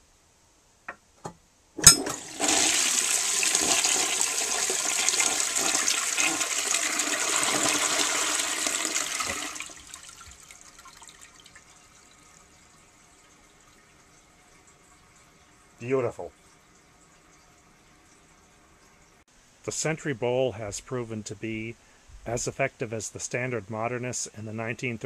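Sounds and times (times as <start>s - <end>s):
flush handle click: 1.8s - 2.2s
toilet water rushing: 1.8s - 19.2s
water trickling into bowl: 5.4s - 19.2s.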